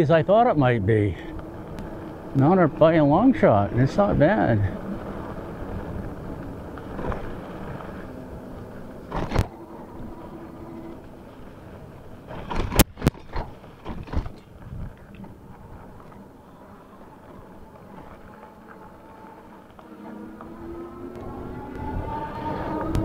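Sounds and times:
bike tyre road noise: 0.0s - 23.0s
bike knocking over bumps: 12.3s - 15.4s.

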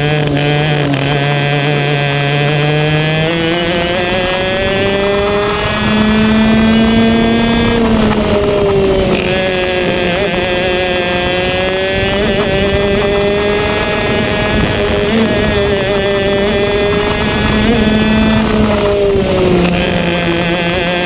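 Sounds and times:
racing kart engine at high revs: 0.0s - 21.0s.

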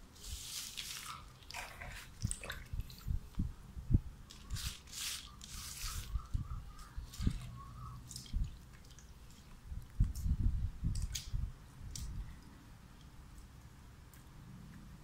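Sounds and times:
wet squelching of leafy greens: 0.2s - 3.2s.

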